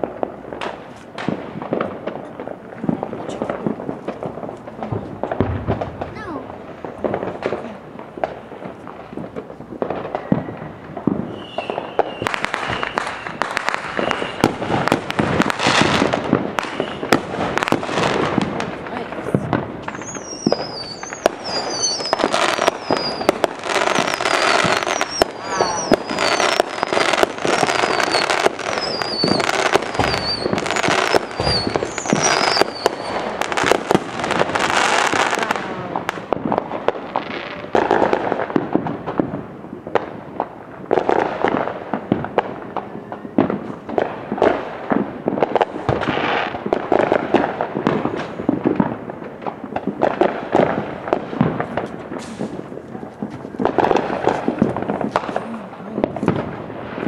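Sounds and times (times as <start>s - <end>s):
fireworks bursting and crackling: 0.0s - 57.0s
falling whistles: 11.3s - 14.6s, 16.6s - 17.1s, 19.9s - 23.4s, 24.0s - 27.0s, 27.6s - 33.2s.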